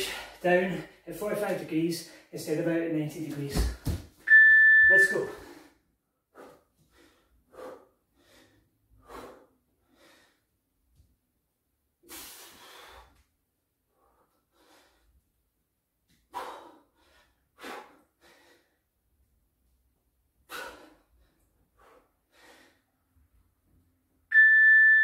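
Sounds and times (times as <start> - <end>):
man breathing hard: 5.3 - 10.6, 12.0 - 13.3, 13.9 - 15.2, 16.2 - 19.0, 20.4 - 23.2.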